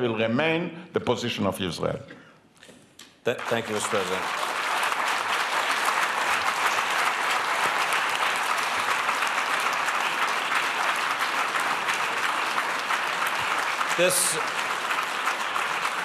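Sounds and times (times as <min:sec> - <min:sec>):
audience applauding: 0:03.3 - 0:16.0.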